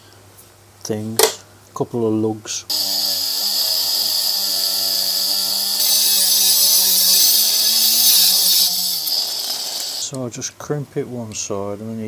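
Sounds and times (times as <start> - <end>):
cordless power tool whining: 2.7 - 10.2.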